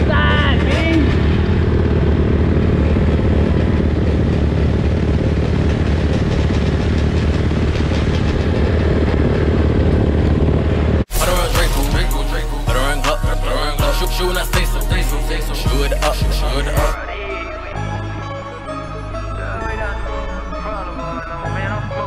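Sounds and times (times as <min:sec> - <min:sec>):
dirt bike engines idling: 0:00.0 - 0:17.0
hip hop music with rapping: 0:11.1 - 0:22.0.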